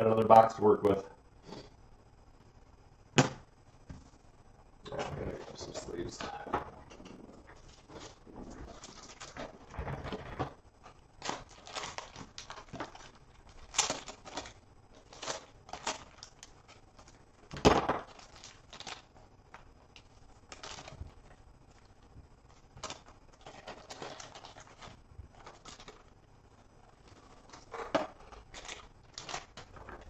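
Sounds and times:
plastic wrapping crinkling and tearing: 0:07.0 - 0:21.9, 0:22.5 - 0:30.0.

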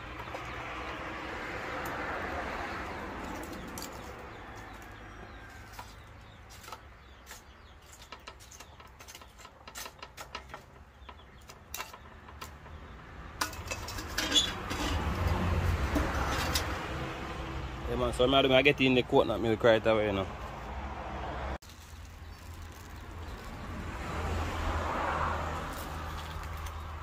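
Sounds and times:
charcoal lumps clinking: 0:03.2 - 0:16.9, 0:21.6 - 0:27.0.

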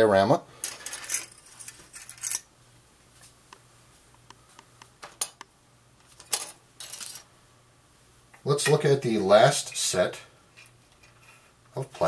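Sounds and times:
rustling scrapes: 0:10.8 - 0:11.6.

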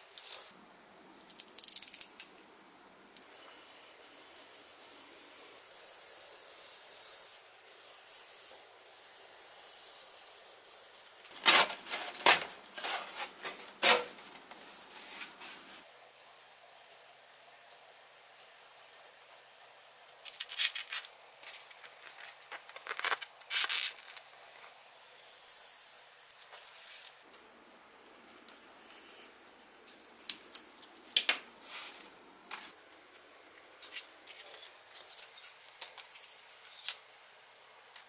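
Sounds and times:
paper rustling: 0:11.3 - 0:15.9, 0:20.3 - 0:24.7.

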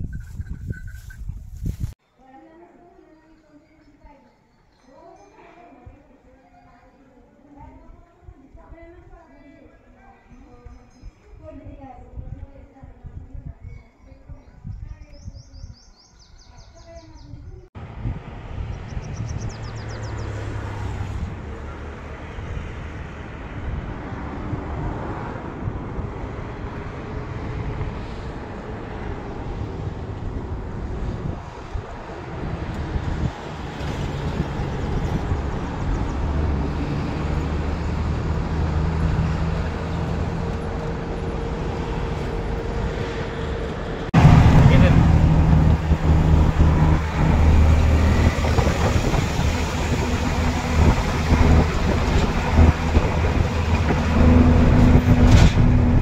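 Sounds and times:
wind noise: 0:00.0 - 0:02.0, 0:10.3 - 0:56.0
vehicle engine rumble: 0:17.2 - 0:56.0.

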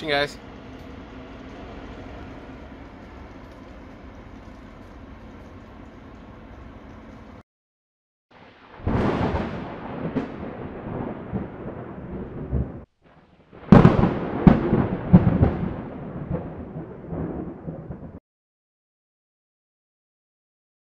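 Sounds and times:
low rumble: 0:00.0 - 0:07.4
heavy boom hits: 0:13.7 - 0:17.4.

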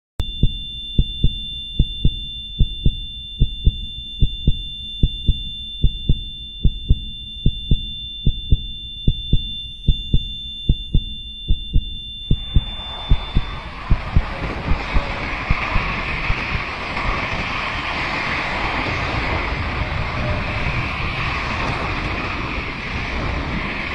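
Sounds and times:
heartbeat thumps: 0:00.2 - 0:16.7
thin high steady tone: 0:00.2 - 0:18.3
rushing noise: 0:12.2 - 0:23.9.

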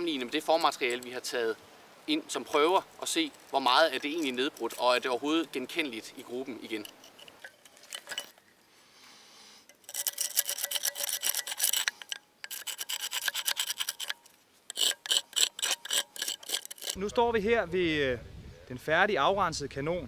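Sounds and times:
metal tool scraping cast metal: 0:00.0 - 0:01.4, 0:03.3 - 0:08.5, 0:09.6 - 0:17.0.

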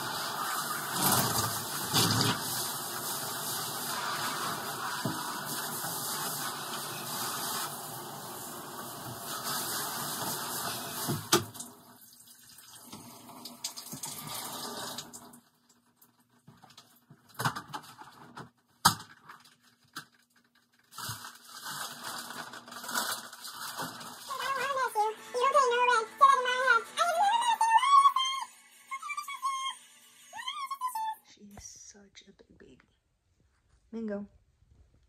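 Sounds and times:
water spraying from shower head: 0:00.0 - 0:11.7.

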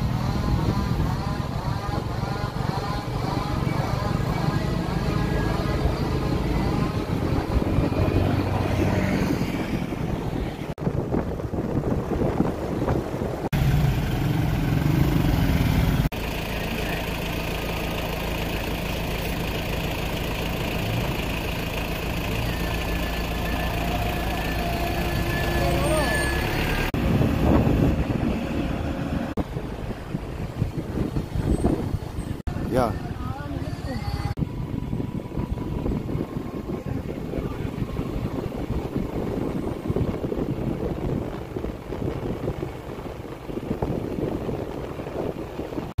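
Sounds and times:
vehicle engines humming: 0:00.0 - 0:46.0
faint voices: 0:36.0 - 0:38.4.

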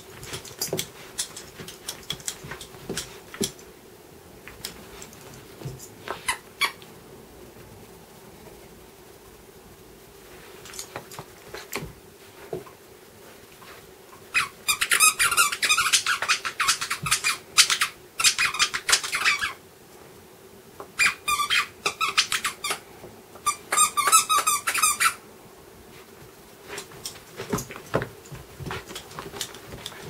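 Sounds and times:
squeaky toy squeaking: 0:14.4 - 0:19.6, 0:21.0 - 0:22.8, 0:23.4 - 0:25.2.

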